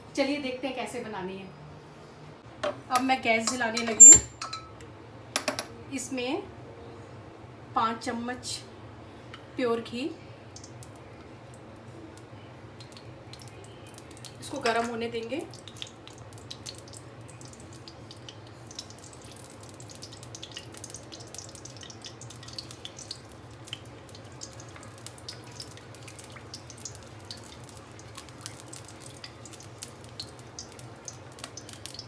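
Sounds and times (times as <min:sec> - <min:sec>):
ghee crackling and popping: 0:10.4 - 0:32.0.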